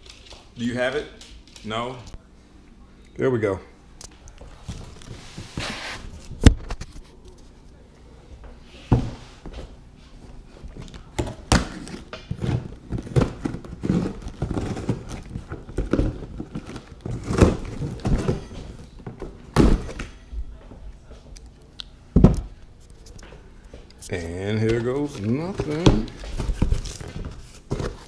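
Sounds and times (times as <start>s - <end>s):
cardboard scraping and rustling: 11.8s - 18.6s.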